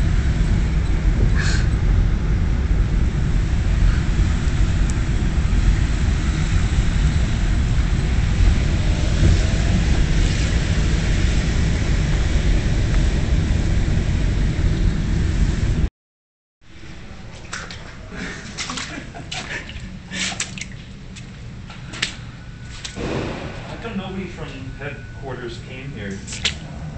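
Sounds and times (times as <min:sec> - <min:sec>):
vehicle rumble: 0:00.0 - 0:15.9, 0:16.7 - 0:26.9
water sloshing: 0:17.1 - 0:25.1, 0:26.2 - 0:26.7.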